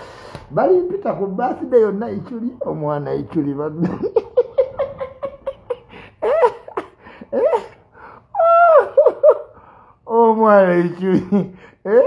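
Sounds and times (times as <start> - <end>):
man laughing: 3.6 - 7.8, 8.4 - 9.6, 11.0 - 12.0.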